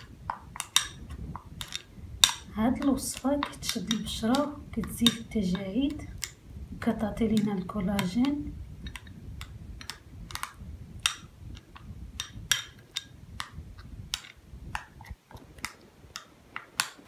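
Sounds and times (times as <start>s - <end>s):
soft rustle of mixing: 0.0s - 17.0s
spoon clicking against bowl: 0.6s - 6.4s.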